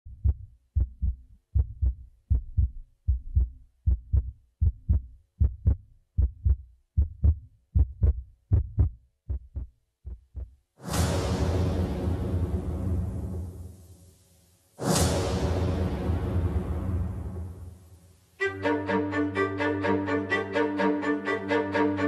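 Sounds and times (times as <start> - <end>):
heartbeat double thump: 0.1 - 10.6.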